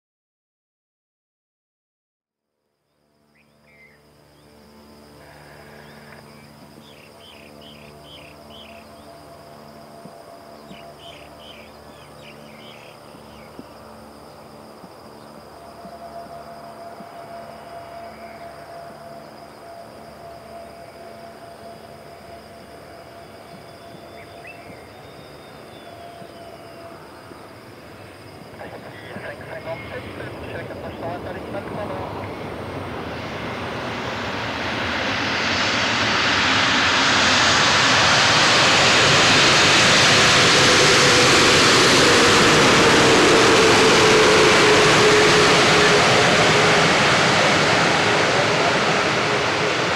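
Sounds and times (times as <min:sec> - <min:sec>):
high-pitched insect drone: 0:02.7 - 0:49.9
jet engine noise with whine: 0:03.2 - 0:49.9
bird chirps: 0:05.7 - 0:09.1, 0:10.6 - 0:13.6.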